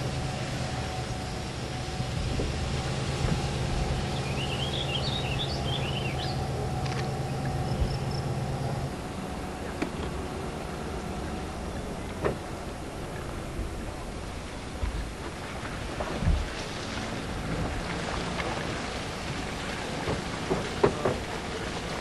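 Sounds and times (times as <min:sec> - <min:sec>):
engine hum: 0:00.0 - 0:22.0
songbird twittering: 0:03.4 - 0:08.8.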